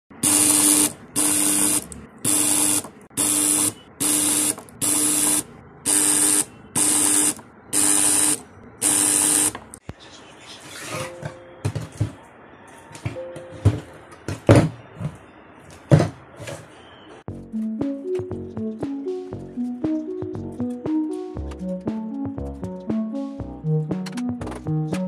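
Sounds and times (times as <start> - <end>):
spot welder buzzing with hiss: 0.2 - 9.6.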